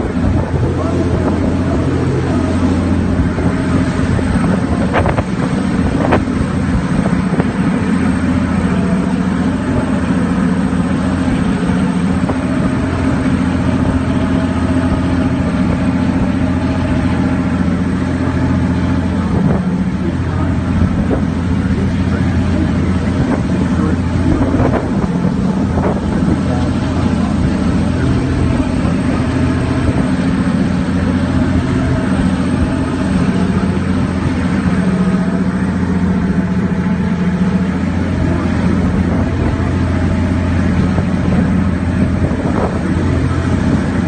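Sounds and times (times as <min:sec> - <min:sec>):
boat engines droning: 0:00.0 - 0:44.0
wind buffeting microphone: 0:00.0 - 0:44.0.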